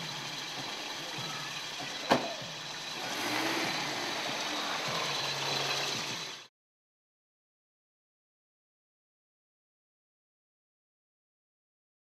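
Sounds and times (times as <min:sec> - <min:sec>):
truck engine running: 0:00.0 - 0:06.5
car door slamming: 0:02.0 - 0:02.4.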